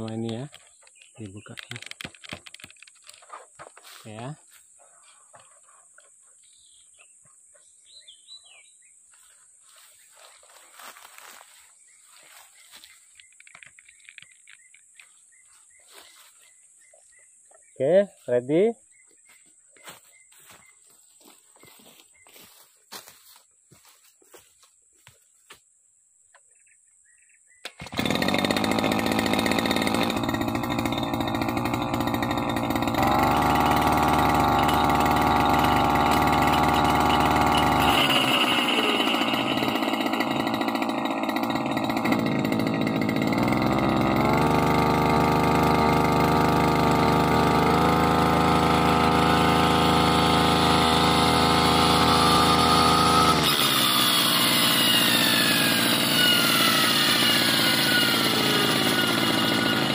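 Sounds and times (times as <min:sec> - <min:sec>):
brush cutter engine revving: 0:00.0 - 0:04.4, 0:09.7 - 0:15.2, 0:27.6 - 0:59.9.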